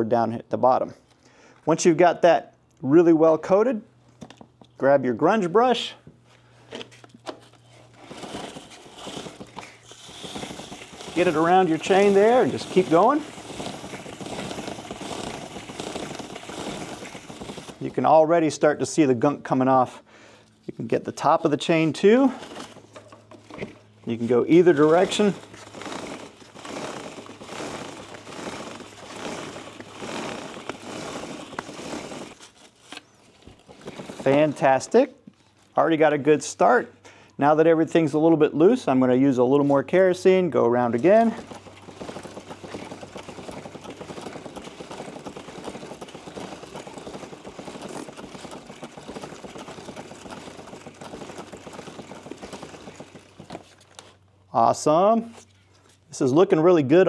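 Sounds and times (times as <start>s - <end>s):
brush scrubbing wet chain: 7.7s - 18.2s, 24.1s - 34.8s, 40.8s - 54.1s
spray bottle spritzing: 7.9s - 17.8s, 24.7s - 32.8s
chain links ticking over sprocket: 24.7s - 32.3s.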